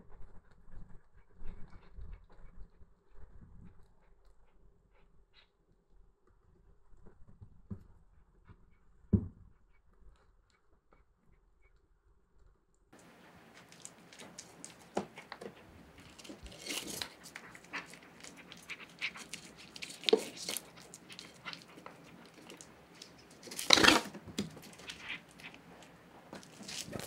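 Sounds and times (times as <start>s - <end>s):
cat chewing and lapping: 13.0s - 27.0s.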